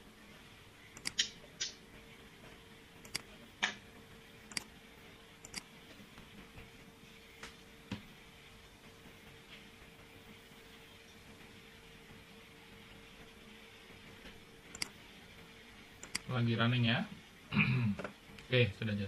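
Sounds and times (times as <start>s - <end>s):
faint hum: 0.0s - 19.0s
computer mouse clicking: 1.0s - 1.8s, 3.0s - 3.8s, 4.5s - 4.7s, 5.4s - 5.7s, 14.7s - 15.0s, 16.0s - 16.3s.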